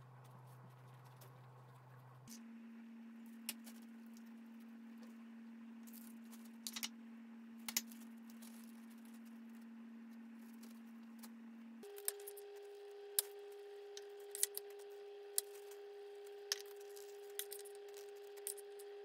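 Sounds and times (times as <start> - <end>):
steady low hum: 0.0 - 19.0
small objects clicking and tapping: 6.6 - 6.9, 16.5 - 18.8.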